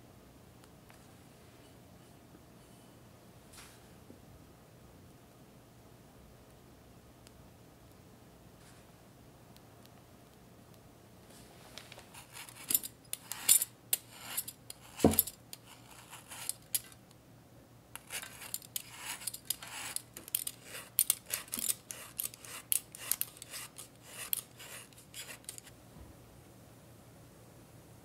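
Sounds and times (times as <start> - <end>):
peeler scraping chocolate: 12.1 - 17.0, 18.0 - 25.7.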